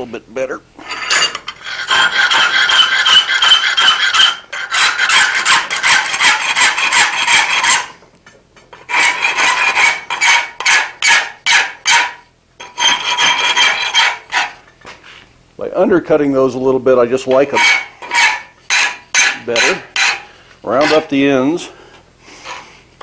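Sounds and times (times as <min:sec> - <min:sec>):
file rasping on iron: 0:00.9 - 0:08.0, 0:08.8 - 0:14.6, 0:17.3 - 0:21.6.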